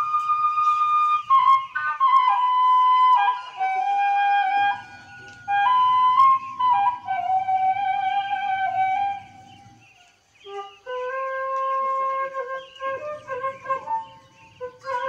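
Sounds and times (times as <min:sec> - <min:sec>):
low musical accompaniment: 0:00.0 - 0:09.8
slow flute melody: 0:00.0 - 0:15.0.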